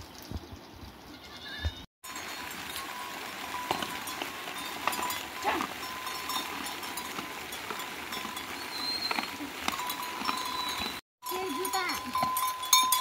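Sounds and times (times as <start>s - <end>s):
pigs rooting through wet vegetation: 2.0s - 13.0s.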